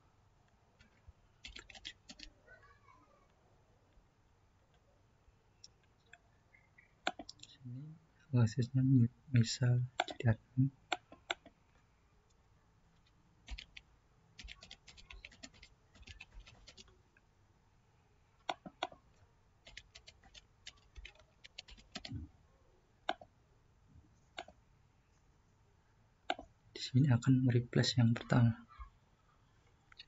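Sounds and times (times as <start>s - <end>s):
faint keyboard typing: 0.8s - 2.4s, 7.0s - 7.6s, 9.9s - 12.4s, 13.0s - 17.0s, 18.4s - 22.3s, 24.3s - 24.6s
mouse clicks: 7.0s - 7.5s, 18.4s - 19.0s, 24.4s - 24.6s.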